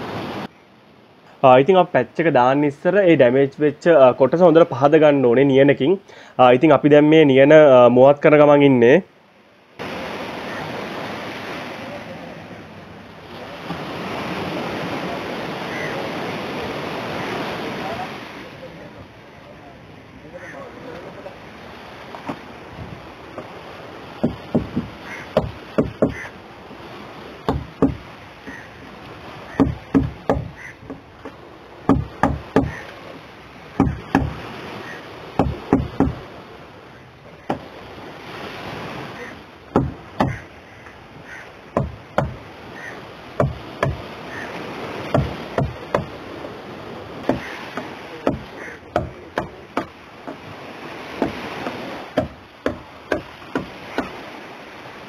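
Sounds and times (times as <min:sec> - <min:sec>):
outdoor hiss: 0:05.6 - 0:06.6
hammer and chisel knocking: 0:24.2 - 0:26.2, 0:27.5 - 0:28.0, 0:29.6 - 0:32.8, 0:33.8 - 0:34.4, 0:35.4 - 0:36.2, 0:39.8 - 0:40.4, 0:41.8 - 0:42.4, 0:43.4 - 0:44.0, 0:45.1 - 0:46.1, 0:47.2 - 0:50.4, 0:51.2 - 0:54.2.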